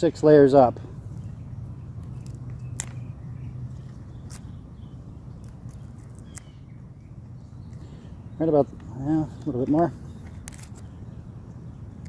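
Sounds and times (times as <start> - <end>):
steady low hum: 0.0 - 12.0
leaves snapping off by hand: 2.0 - 3.1, 5.4 - 6.5, 10.3 - 11.0.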